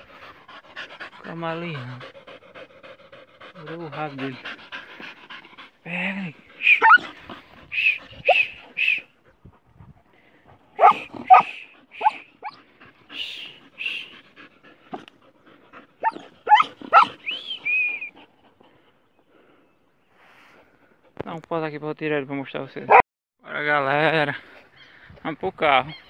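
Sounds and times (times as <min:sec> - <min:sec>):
dogs yelping and barking: 0:06.5 - 0:09.4, 0:10.8 - 0:18.8.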